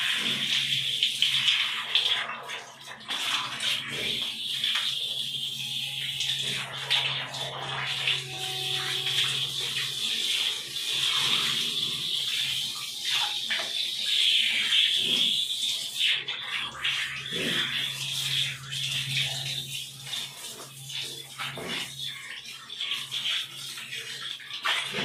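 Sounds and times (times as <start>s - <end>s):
shower hose spraying water: 0.0s - 25.0s.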